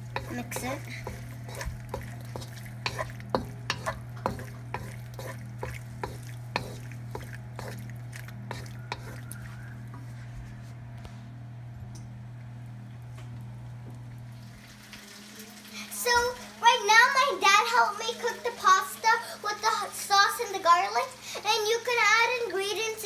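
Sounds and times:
spoon knocking and scraping pan: 0.0s - 10.1s
light sizzle from pan: 0.0s - 10.2s, 11.9s - 23.0s
wooden spoon stirring in a wok: 0.0s - 10.7s
steady low hum: 0.0s - 14.6s.

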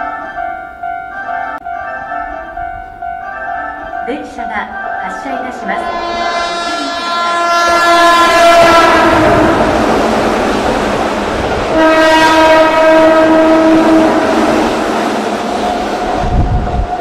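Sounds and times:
electric train horn: 5.7s - 10.8s, 11.6s - 15.6s
train wheels rolling on rails: 5.9s - 17.0s.

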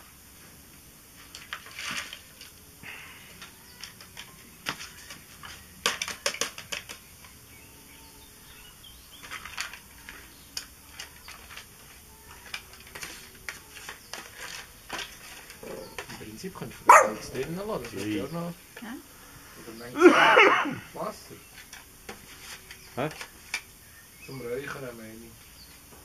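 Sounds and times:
charcoal grill crackling and popping: 0.2s - 26.0s.

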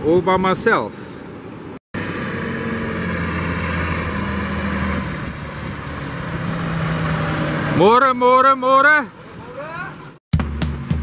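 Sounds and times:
tractor diesel engine running: 2.0s - 8.1s.

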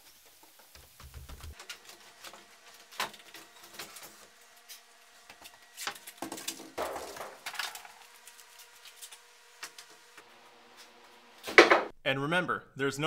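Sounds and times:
footsteps on wooden stairs: 0.1s - 1.6s.

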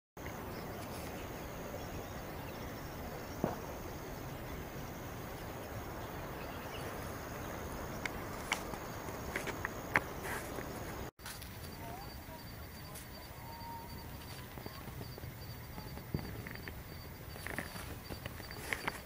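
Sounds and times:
outdoor background noise: 0.2s - 19.0s.

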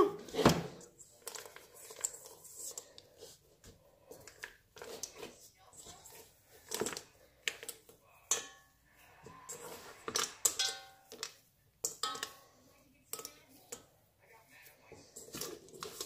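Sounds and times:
mixing bowl knocking and clinking: 3.6s - 14.0s, 14.9s - 16.0s.

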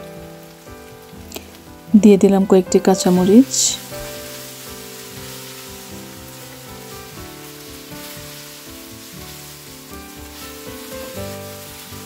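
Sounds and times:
soft background music: 0.0s - 12.0s
vegetables sizzling in a wok: 0.0s - 12.0s
wooden spatula stirring: 2.9s - 12.0s.

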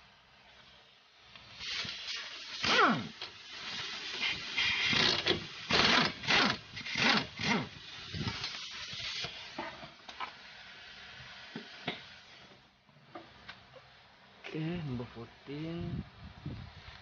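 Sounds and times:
ratchet wrench ratcheting: 4.6s - 7.7s.

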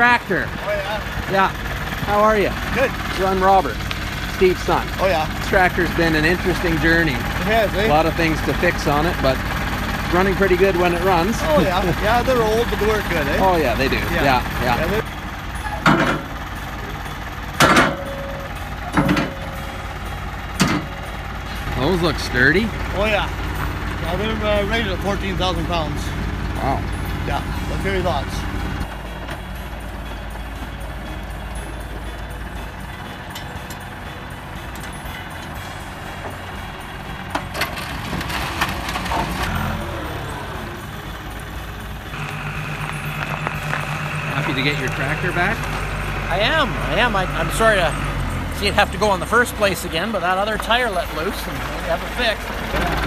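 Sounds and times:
truck engine idling: 0.0s - 53.0s
metal ramps clanking: 0.6s - 27.2s, 28.0s - 42.4s
sharp metal clanks: 11.0s - 24.9s.

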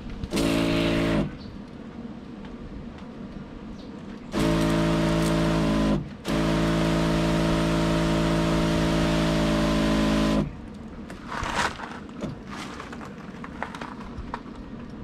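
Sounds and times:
electric pump running: 0.0s - 1.4s, 4.3s - 10.7s.

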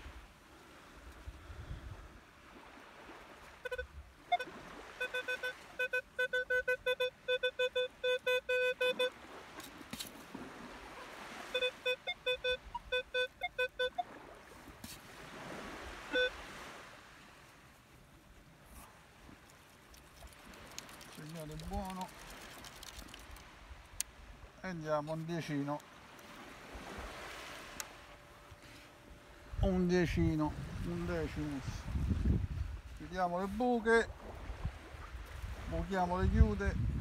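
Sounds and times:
metal detector beeps: 3.6s - 9.2s, 11.4s - 14.2s, 16.1s - 16.4s.

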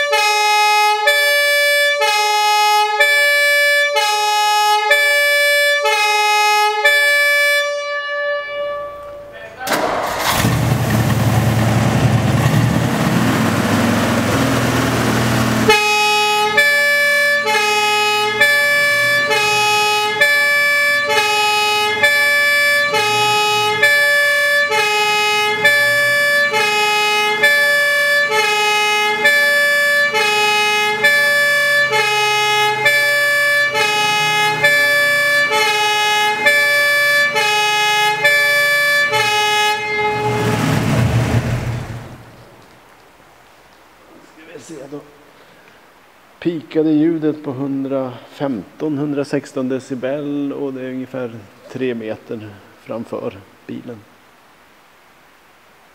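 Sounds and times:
two-tone fire truck siren: 0.0s - 10.4s, 12.9s - 42.3s.

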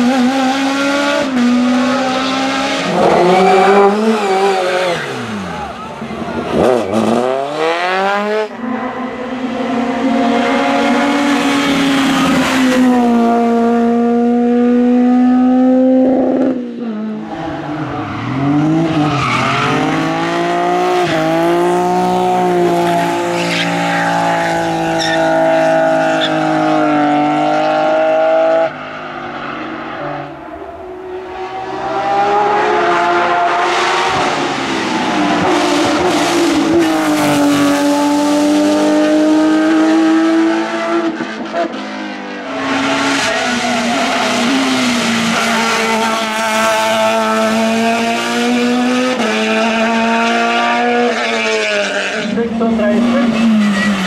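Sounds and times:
race car engines revving hard: 0.0s - 54.0s
tyre squeal: 2.9s - 5.5s, 22.8s - 26.5s.

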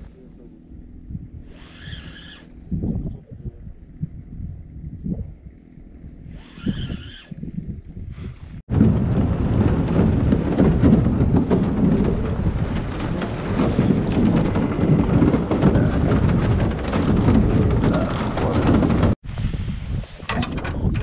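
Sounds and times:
boat hull grinding through ice: 8.7s - 19.2s.

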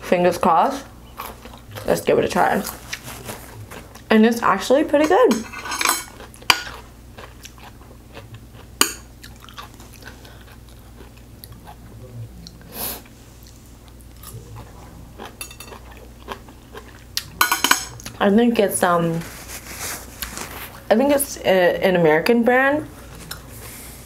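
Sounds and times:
chewing and crunching: 1.1s - 4.2s, 5.7s - 18.3s.

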